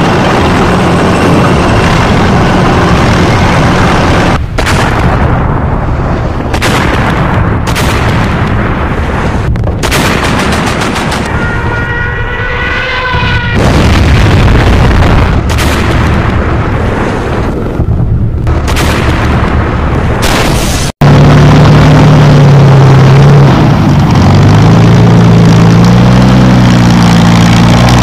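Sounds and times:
artillery blasts: 0.0 - 11.8, 13.3 - 22.0
dense gunfire: 4.4 - 11.5, 13.5 - 20.9.

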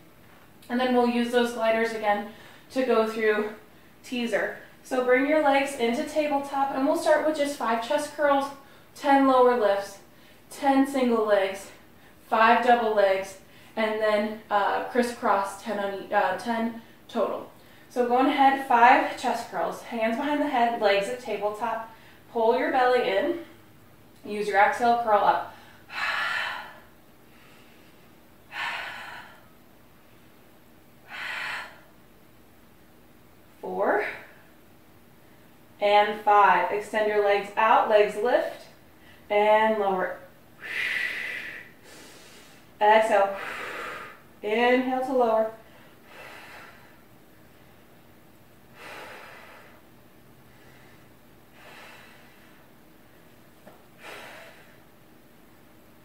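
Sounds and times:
woman breathing hard: 25.5 - 29.6, 31.0 - 32.0, 40.6 - 42.7, 43.3 - 44.3, 45.6 - 47.1, 48.7 - 53.3, 53.9 - 55.0
woman forcefully breathing out: 43.4 - 44.2, 54.0 - 54.9.

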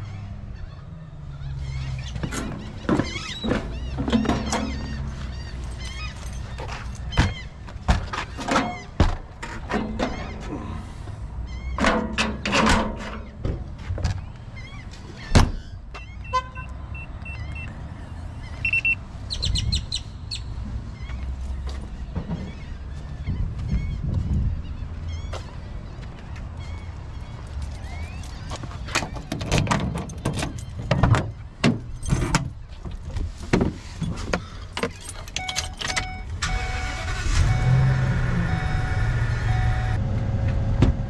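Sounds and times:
birds calling: 0.0 - 11.9, 13.0 - 36.2
low vehicle hum: 0.0 - 41.0
knocks and clunks: 2.1 - 5.2, 6.6 - 10.6, 11.7 - 14.3, 28.5 - 36.2, 40.4 - 41.0
short beeps: 18.6 - 19.0, 35.4 - 40.0.

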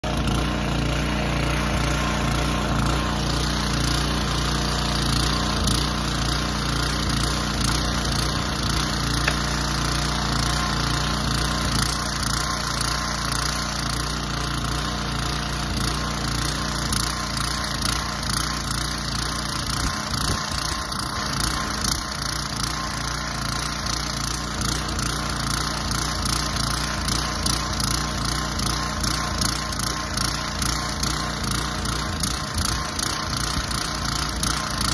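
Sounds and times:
small engine running: 0.0 - 34.9.

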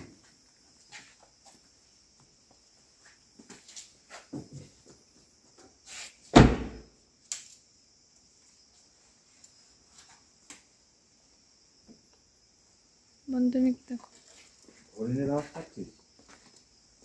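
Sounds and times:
crickets chirring: 0.0 - 17.0
car door slamming: 6.3 - 6.8.

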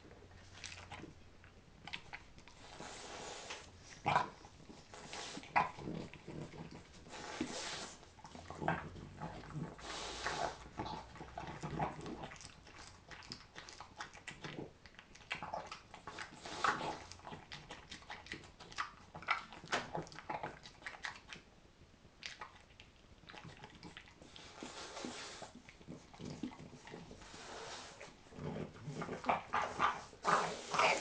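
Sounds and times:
dog chewing crunchily: 0.1 - 21.5, 22.2 - 31.0
dog breathing through nose: 2.5 - 3.8, 4.9 - 5.6, 7.0 - 8.0, 9.7 - 10.7, 16.1 - 17.2, 24.2 - 25.7, 26.3 - 28.2.

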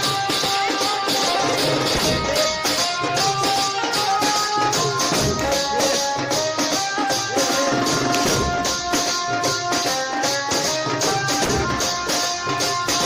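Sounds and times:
quick percussion beat: 0.0 - 13.0.

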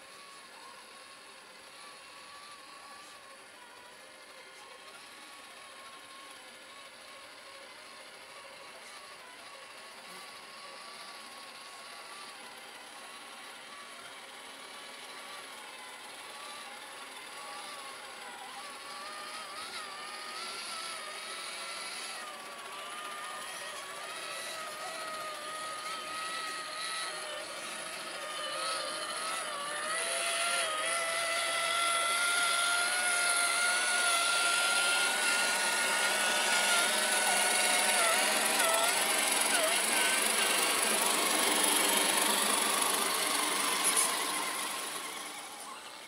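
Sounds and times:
rc truck motors whining: 0.0 - 46.0.

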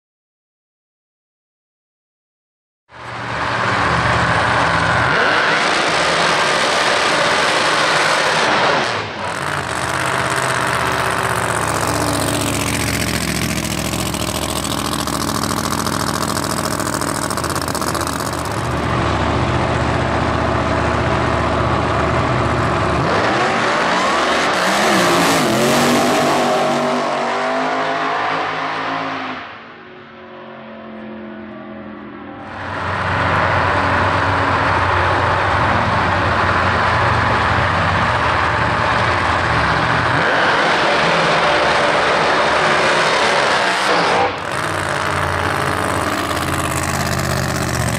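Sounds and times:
supercharged engine revving: 3.2 - 29.4, 32.5 - 47.9
tyres spinning in burnout: 3.7 - 18.9, 32.6 - 47.9.

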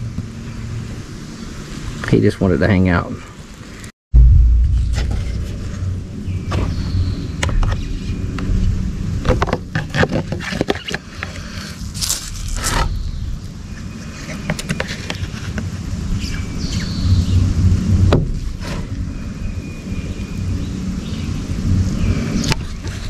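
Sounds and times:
low rumble: 4.1 - 9.9
plastic container scraping: 9.2 - 13.0.

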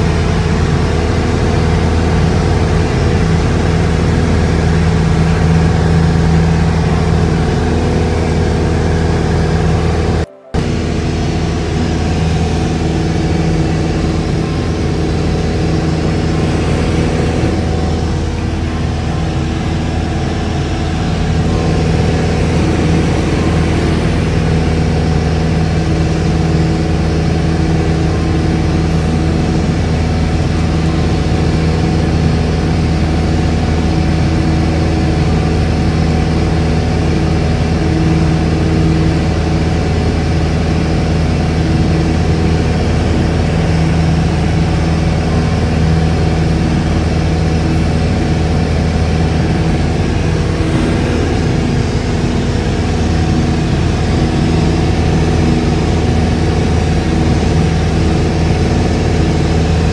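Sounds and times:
aircraft engine and propeller drone: 0.0 - 59.9
rush of air: 49.9 - 53.7.

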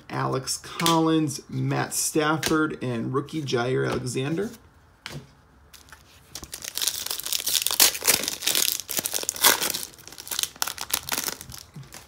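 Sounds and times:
foil wrapper tearing and crinkling: 5.8 - 12.0.

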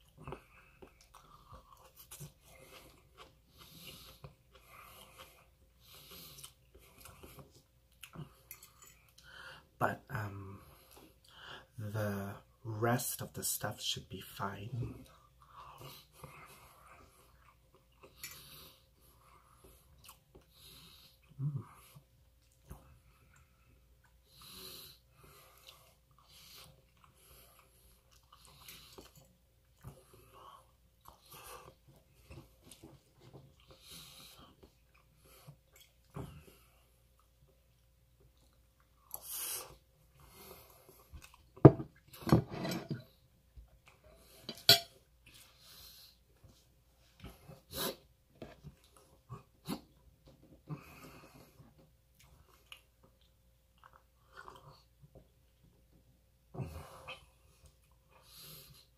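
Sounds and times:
chewing: 0.0 - 9.3, 15.1 - 24.3, 25.3 - 42.2, 51.5 - 55.7
fork clinking on ceramic plate: 44.5 - 45.0.

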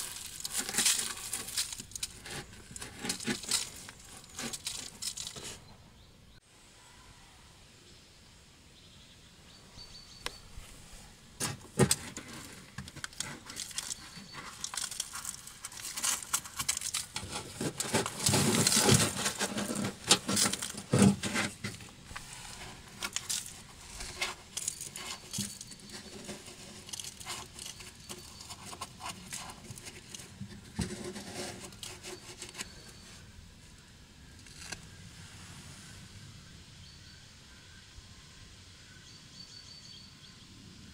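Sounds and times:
scraping dirt and leaves: 0.0 - 6.1, 9.9 - 36.4.

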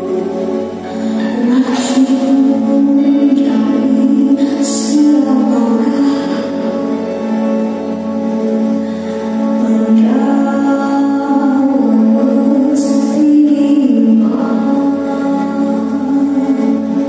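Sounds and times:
women singing together: 1.4 - 6.5.

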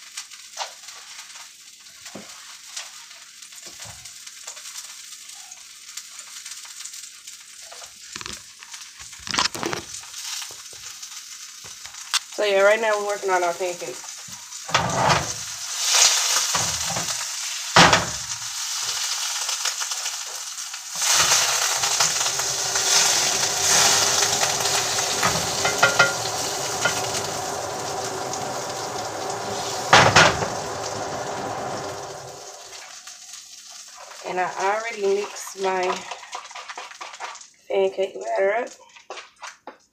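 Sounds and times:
pancakes sizzling in a pan: 0.0 - 39.8
spatula knocking and scraping pan: 21.0 - 27.4.

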